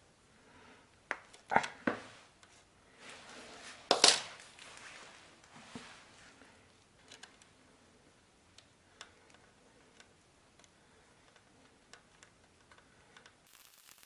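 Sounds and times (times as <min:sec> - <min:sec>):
rustling of wire and hands: 0:02.1 - 0:14.0.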